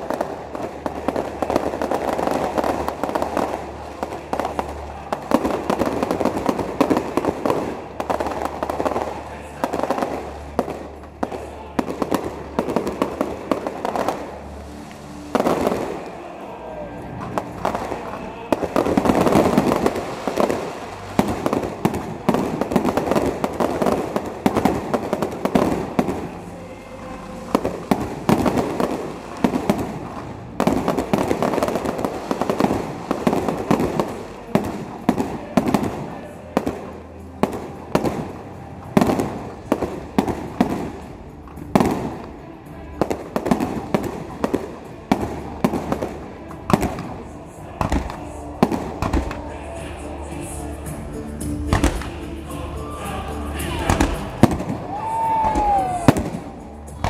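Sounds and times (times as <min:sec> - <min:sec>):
firework bangs: 0:00.0 - 0:50.6, 0:51.4 - 0:57.0
fireworks crackling: 0:00.0 - 0:57.0
music playing: 0:00.0 - 0:57.0.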